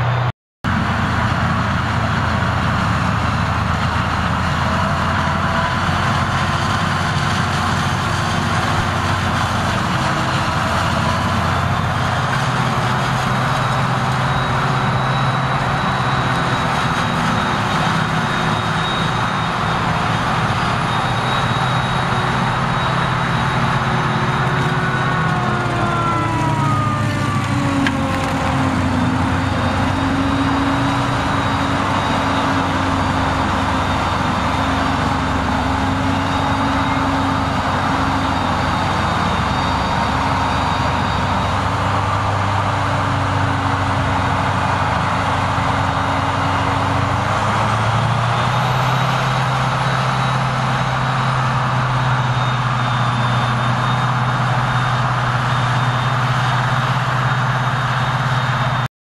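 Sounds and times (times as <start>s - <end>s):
forage harvester engine drone: 0.0s - 58.9s.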